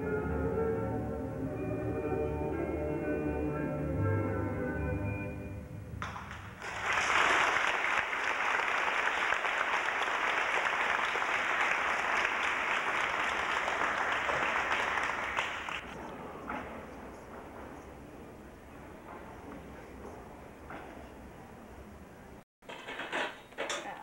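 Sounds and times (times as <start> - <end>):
audience applauding: 6.0 - 16.0.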